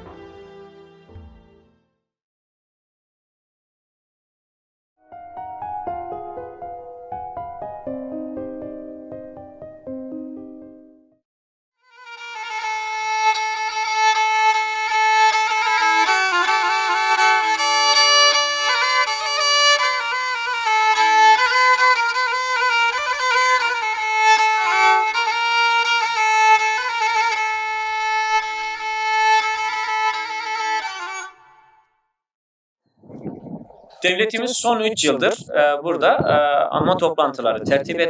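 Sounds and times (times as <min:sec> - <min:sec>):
fiddle playing quick melody: 0:11.9 - 0:31.8.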